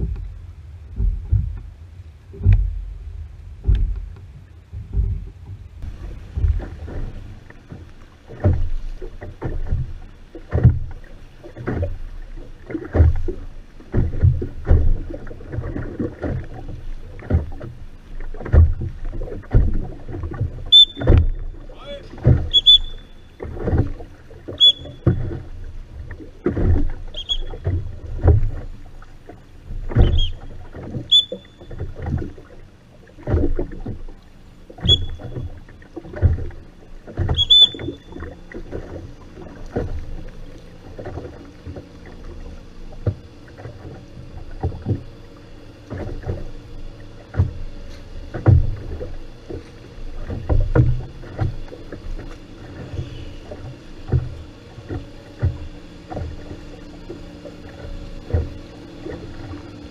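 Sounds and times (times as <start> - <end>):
faint steady hum: 0.0 - 59.9
oars knocking and splashing: 0.0 - 59.9
oar squeak: 20.6 - 23.9, 24.5 - 25.4, 27.1 - 27.8, 29.8 - 32.1, 34.8 - 35.6, 37.2 - 38.3.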